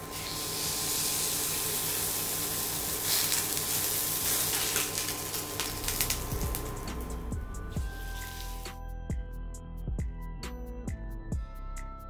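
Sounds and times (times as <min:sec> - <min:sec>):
steak sizzling in a frying pan: 0:00.0 - 0:06.8, 0:07.9 - 0:08.7.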